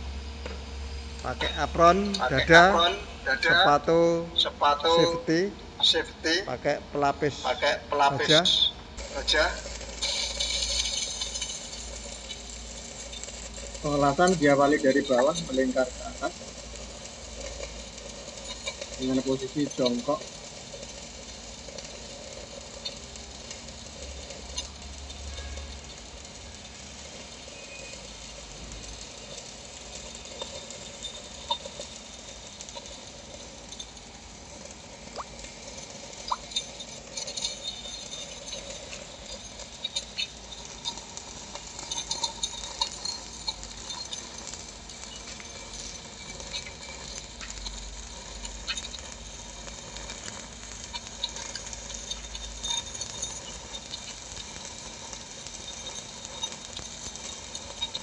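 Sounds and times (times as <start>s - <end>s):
welding arc crackling and sizzling: 0.0s - 58.0s
spatter pops and clicks: 35.1s - 35.6s.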